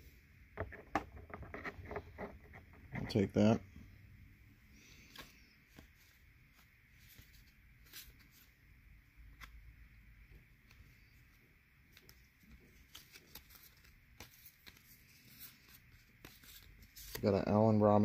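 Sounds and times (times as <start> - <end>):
trading cards clicking and rustling: 4.9 - 8.5, 10.3 - 17.8.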